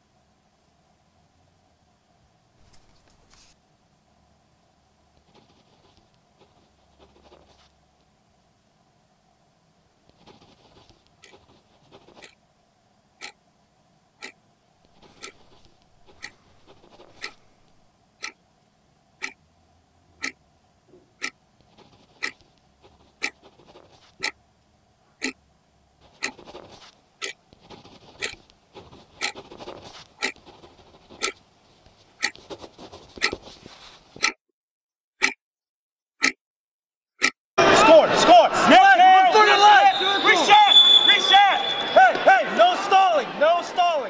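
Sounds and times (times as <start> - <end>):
pens scratching on paper: 2.6 - 3.6, 5.2 - 7.8, 10.1 - 12.4, 14.8 - 17.9, 21.6 - 24.3, 26.0 - 34.4
clock ticking: 15.0 - 18.4, 19.2 - 19.4, 20.2 - 20.4, 22.2 - 22.4, 26.1 - 26.6, 27.2 - 27.4, 28.2 - 28.4, 29.2 - 30.4, 31.2 - 31.4, 32.2 - 32.4, 33.2 - 33.4, 34.2 - 34.4, 35.2 - 35.4, 36.2 - 36.4, 37.2 - 37.4.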